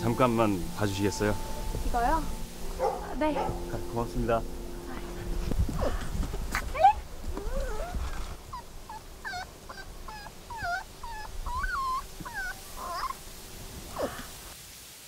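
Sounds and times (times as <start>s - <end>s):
puppy whimpering: 5.8s - 13.2s, 14.0s - 14.2s.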